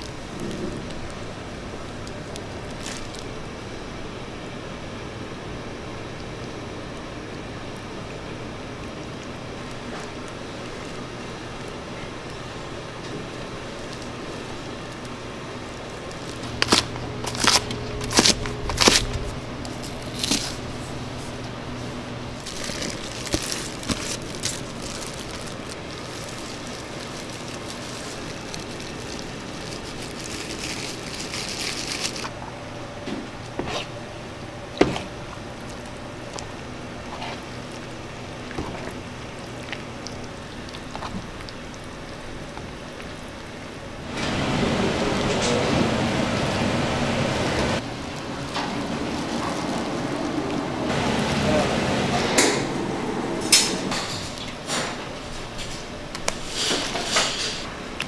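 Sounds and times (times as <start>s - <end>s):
powder sprinkling hiss: 0.0s - 4.1s, 8.4s - 32.3s, 39.2s - 52.3s
low steady hum: 0.0s - 56.5s.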